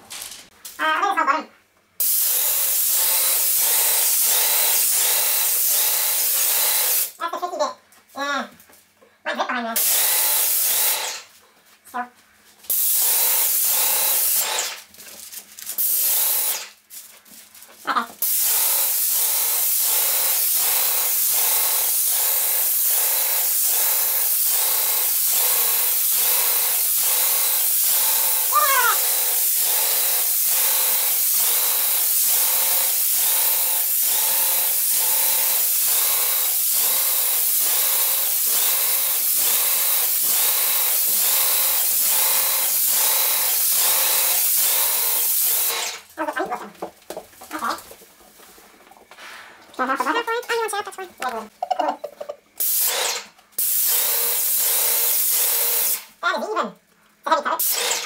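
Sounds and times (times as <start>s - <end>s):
paint sprayer hissing: 2.0s - 7.2s, 9.8s - 11.4s, 12.7s - 14.9s, 15.7s - 16.8s, 18.2s - 46.1s, 52.6s - 56.2s, 57.6s - 58.0s.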